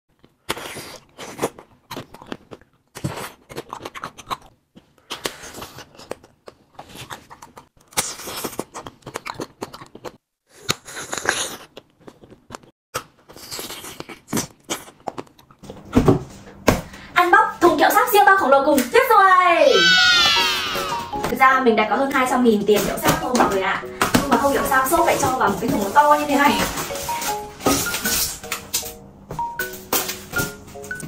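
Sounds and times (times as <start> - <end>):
candies being bitten and chewed: 0.1 - 15.6.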